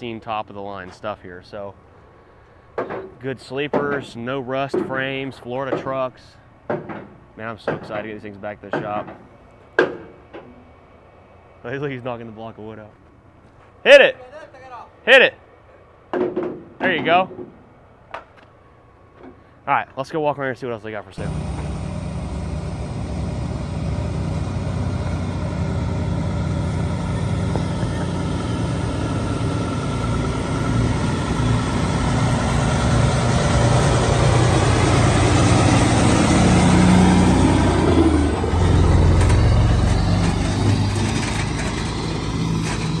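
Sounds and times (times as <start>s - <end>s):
diesel truck engine passing: 21.2s - 43.0s
tyre and road noise: 21.2s - 43.0s.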